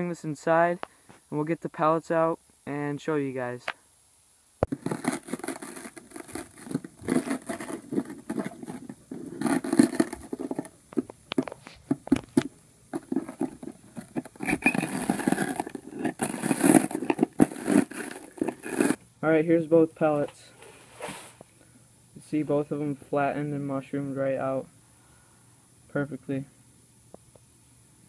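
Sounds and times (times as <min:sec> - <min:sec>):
tool scraping through broken glass: 0:13.1 - 0:19.0.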